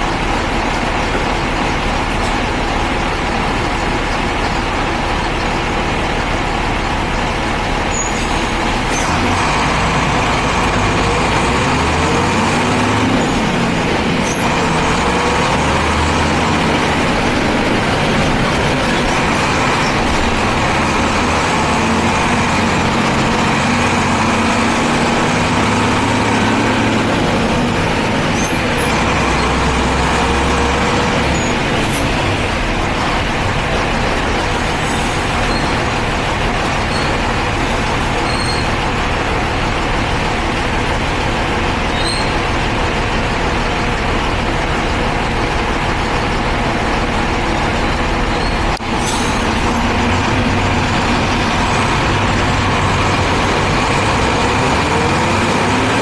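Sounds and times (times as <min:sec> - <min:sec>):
diesel bus engine: 0:00.0 - 0:56.0.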